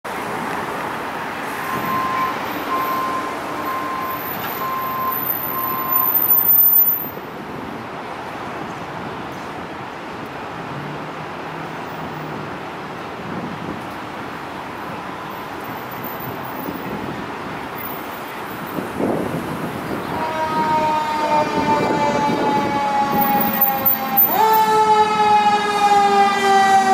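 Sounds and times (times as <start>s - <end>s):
street traffic noise: 0.0s - 26.9s
high electronic beep: 1.7s - 6.2s.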